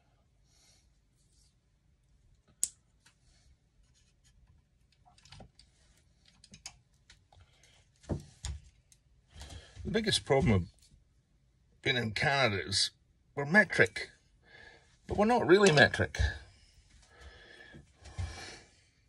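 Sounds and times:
small clicks and rustles: 0:03.8 - 0:09.7.

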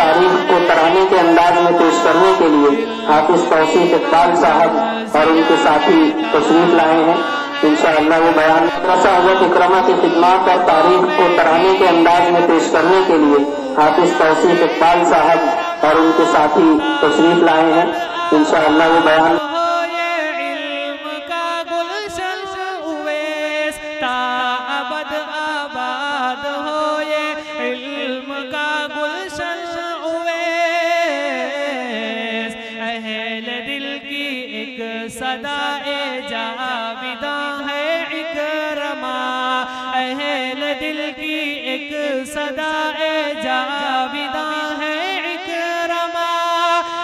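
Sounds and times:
group of voices singing: 0:00.0 - 0:19.4.

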